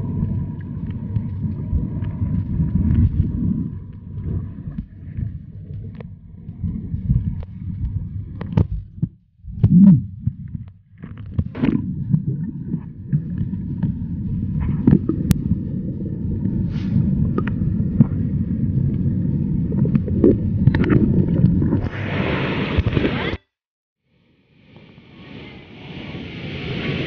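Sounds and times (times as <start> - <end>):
muffled underwater river rumble: 0.0 - 23.3
underwater knocks and pops: 0.6 - 15.5, 17.2 - 19.0, 19.6 - 21.9.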